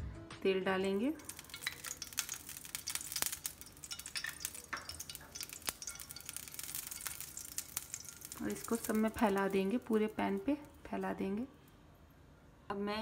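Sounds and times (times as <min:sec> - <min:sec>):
oil sizzling in frying pan: 0:00.9 - 0:11.2.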